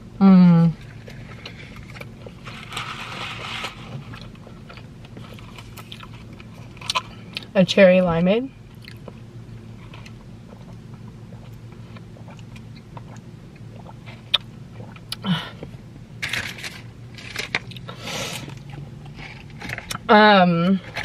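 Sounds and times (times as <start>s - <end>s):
low hum: 0.0s - 21.0s
breathy sounds: 15.1s - 15.8s.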